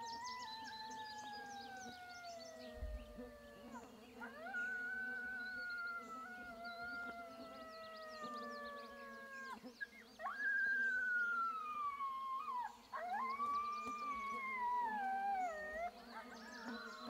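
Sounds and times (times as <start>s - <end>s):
coyote howls from game call: 0.0s - 9.6s, 10.2s - 17.0s
fainter higher calls: 10.2s - 15.9s.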